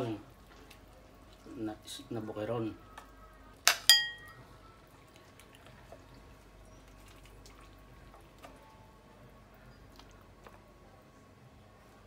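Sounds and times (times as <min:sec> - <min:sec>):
metal ladle clinking: 0:03.7 - 0:04.4.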